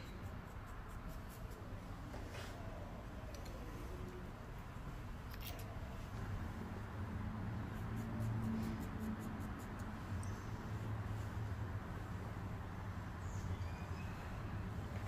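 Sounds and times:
shears snipping hair: 0:07.7 - 0:10.2.

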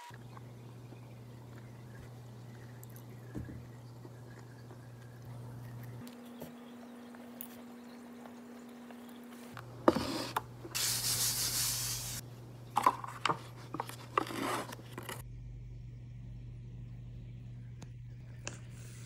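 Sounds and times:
paper lid tearing: 0:13.7 - 0:15.2.

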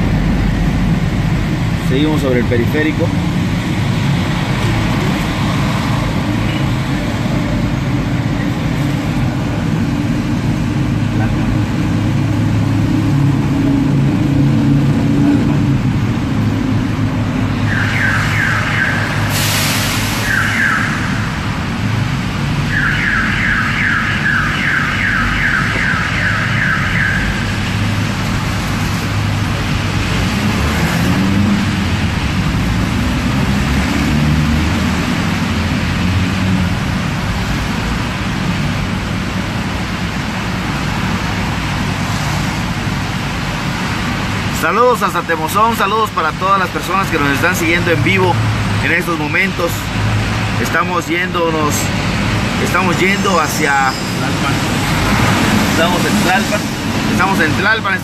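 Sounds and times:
car engine and road rumble: 0:00.0 - 0:58.0
electronic siren chirps: 0:17.7 - 0:19.3, 0:20.2 - 0:21.2, 0:22.7 - 0:27.5.

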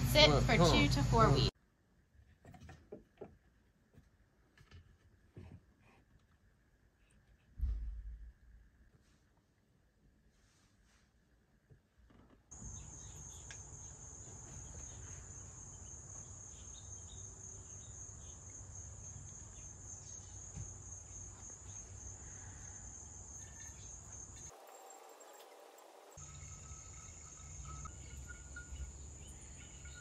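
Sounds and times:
low outdoor rumble: 0:00.0 - 0:01.5
insects trilling: 0:12.6 - 0:30.0.

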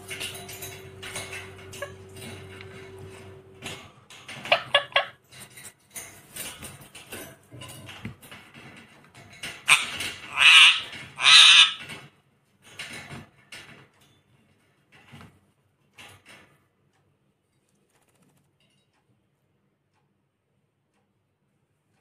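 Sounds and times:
parakeet squawking: 0:09.7 - 0:11.9.

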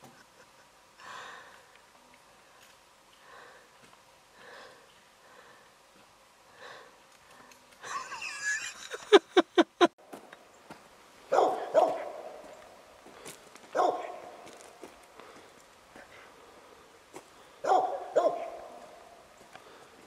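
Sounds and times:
dog barking: 0:11.3 - 0:12.4, 0:13.7 - 0:14.4, 0:17.6 - 0:19.0.

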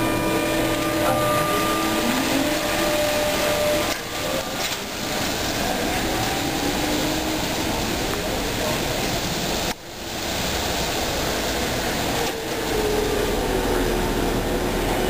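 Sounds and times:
trolleybus electric motor whine: 0:00.0 - 0:08.8
street noise: 0:00.0 - 0:15.0.

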